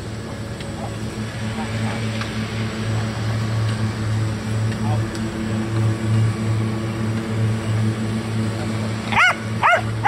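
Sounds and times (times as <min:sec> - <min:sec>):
low mechanical motor hum: 0:00.0 - 0:10.0
dog barking: 0:09.1 - 0:09.9.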